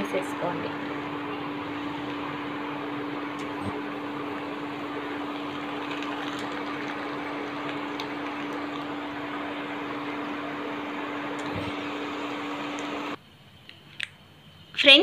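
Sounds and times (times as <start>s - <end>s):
mechanical hum: 0.0s - 15.0s.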